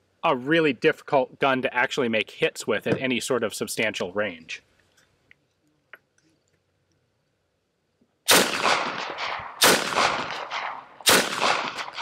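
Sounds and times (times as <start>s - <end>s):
machine pistol full-auto bursts: 8.3s - 12.0s.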